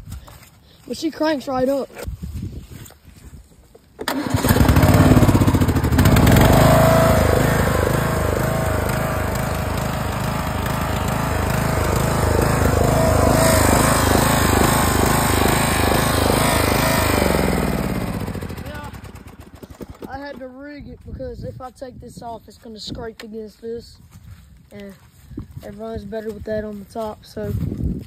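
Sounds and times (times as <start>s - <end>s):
lawn mower engine starting: 4.0s - 20.4s.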